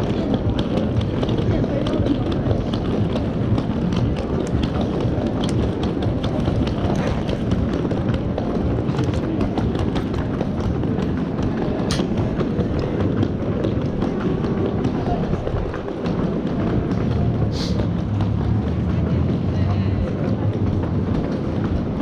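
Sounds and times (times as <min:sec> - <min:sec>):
footsteps on stone paving: 0:00.0 - 0:22.0
low rumble of street noise: 0:00.0 - 0:22.0.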